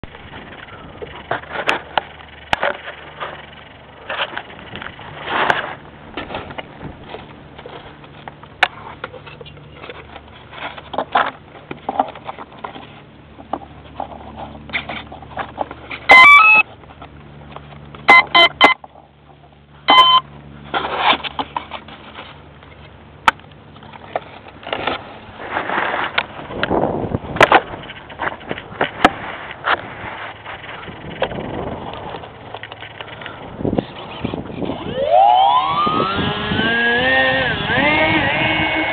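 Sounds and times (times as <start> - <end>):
handling knocks and rustling: 0.0 - 16.1, 20.4 - 34.8
electronic beeps: 16.1 - 16.6, 18.1 - 18.8, 19.9 - 20.3.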